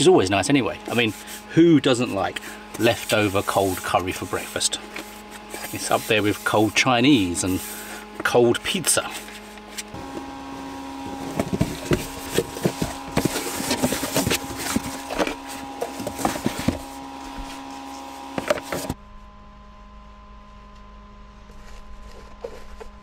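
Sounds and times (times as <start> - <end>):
faint steady hum: 0.0 - 23.0
cardboard rustling and knocking: 11.0 - 17.6, 18.3 - 19.0.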